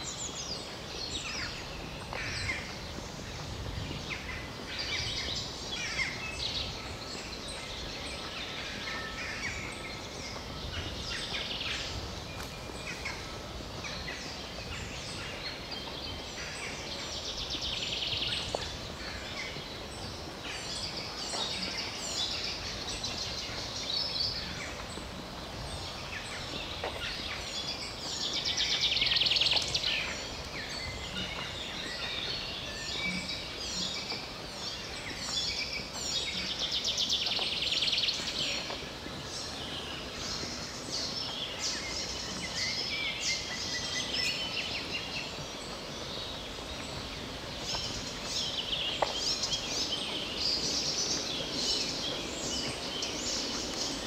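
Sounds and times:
low background noise: 0.0s - 54.0s
songbirds singing: 0.0s - 54.0s.

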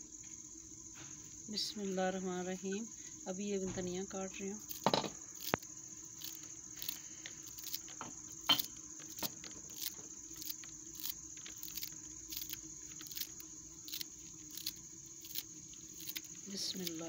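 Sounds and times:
knife slicing herbs: 8.5s - 17.0s.

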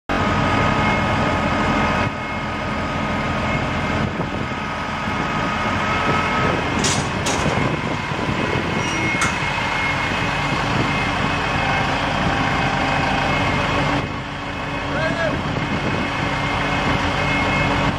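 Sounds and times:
heavy machine engines running: 0.1s - 17.9s.

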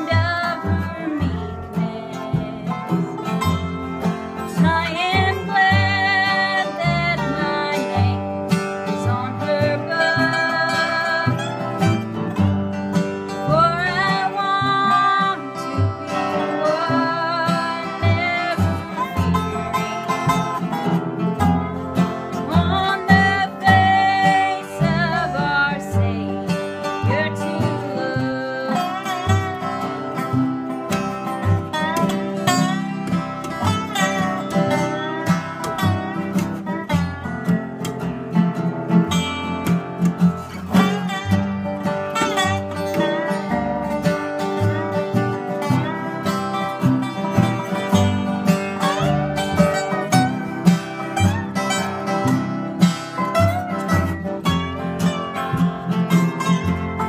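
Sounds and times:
woman singing: 0.0s - 3.8s, 4.4s - 12.0s, 13.3s - 20.1s, 22.3s - 30.4s
guitar strumming: 0.0s - 57.0s
slide resonator guitar: 0.0s - 57.0s
upright bass plucking: 0.0s - 57.0s.

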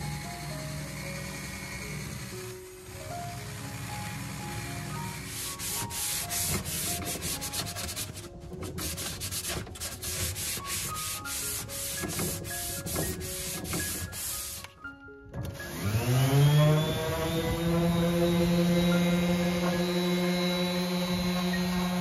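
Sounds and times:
background music with melody: 0.0s - 22.0s
sanding sponge scuffing wood: 5.3s - 14.7s.

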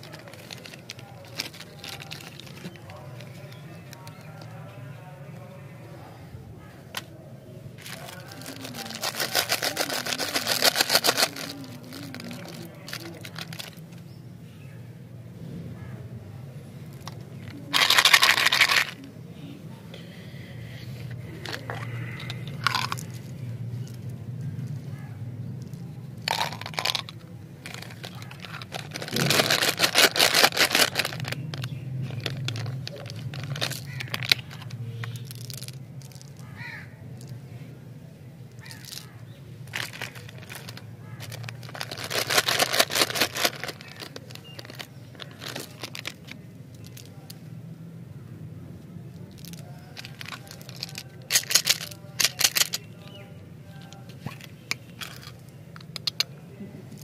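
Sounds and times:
plastic wrapper crinkling: 0.0s - 4.5s, 7.8s - 13.9s, 17.0s - 19.0s, 21.4s - 23.3s, 25.6s - 36.5s, 38.6s - 47.3s, 49.2s - 52.9s
wrapper being torn open: 27.7s - 36.5s, 39.7s - 46.3s.

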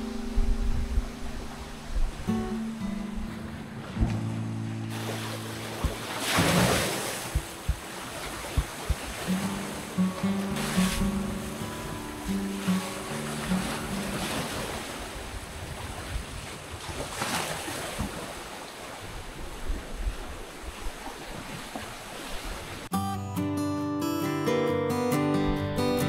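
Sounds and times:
acoustic guitar tune: 0.0s - 15.1s, 22.9s - 26.0s
waves washing onto beach: 0.0s - 22.9s
wind rumbling on microphone: 0.0s - 22.9s.

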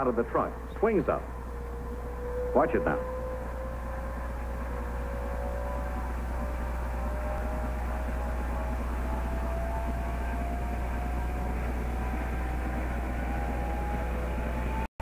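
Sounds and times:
electric motor whine: 0.4s - 14.9s.

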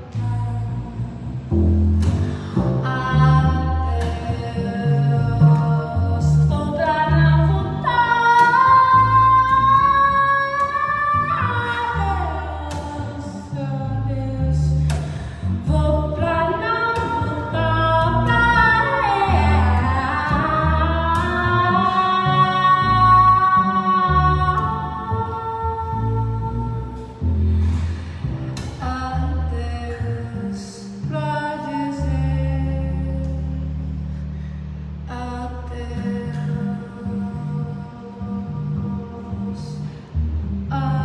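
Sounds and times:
woman singing: 0.0s - 1.2s, 2.0s - 27.2s, 28.6s - 33.9s, 35.1s - 40.1s, 40.7s - 41.0s
upright double bass: 0.0s - 41.0s.

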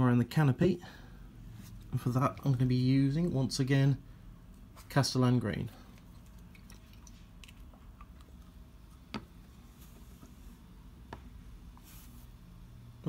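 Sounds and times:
faint handling noises: 5.6s - 12.6s.

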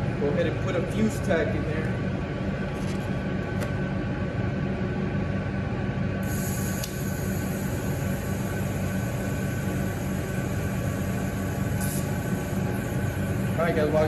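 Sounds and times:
welding arc hissing and humming: 6.2s - 14.0s.

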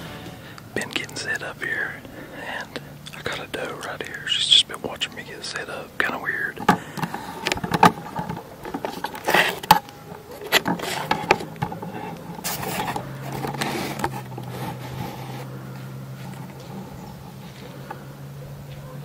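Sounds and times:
low steady hum: 0.0s - 19.0s
short scrapes and knocks: 6.6s - 15.5s
clothing rustling: 6.8s - 18.0s.

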